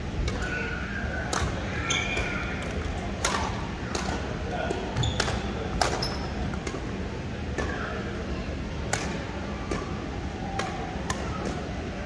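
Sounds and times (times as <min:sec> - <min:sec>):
faint voices: 0:00.2 - 0:12.0
badminton rackets hitting shuttlecock: 0:01.2 - 0:06.8, 0:08.9 - 0:09.9.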